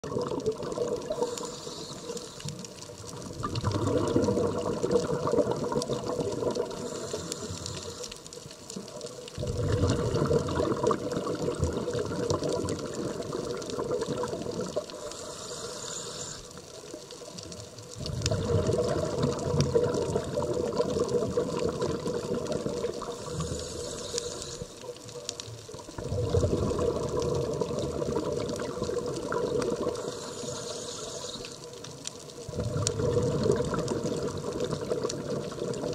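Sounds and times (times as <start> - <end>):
regulator bubbles gurgling underwater: 0.0 - 35.9
diver inhaling through regulator: 1.0 - 2.6, 6.5 - 8.3, 14.9 - 16.6, 23.0 - 24.9, 29.8 - 31.6.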